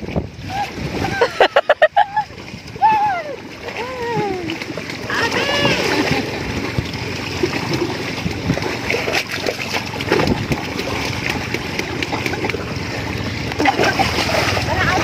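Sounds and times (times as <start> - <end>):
sea water splashing around waders: 0.0 - 15.0.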